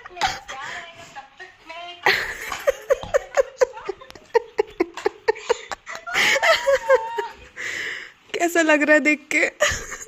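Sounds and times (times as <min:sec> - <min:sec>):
woman laughing hard: 0:02.0 - 0:07.8.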